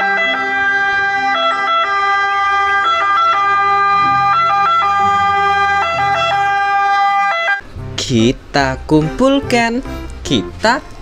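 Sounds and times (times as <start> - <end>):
ambulance siren: 0.0 - 7.6.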